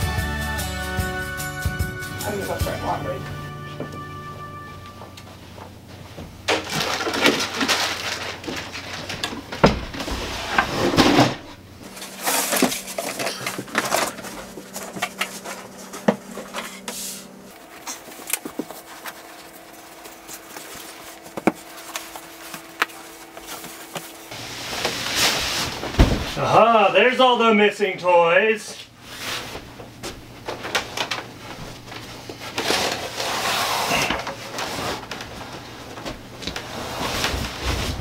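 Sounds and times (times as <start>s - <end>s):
rustling and scuffing: 11.8s - 26.4s.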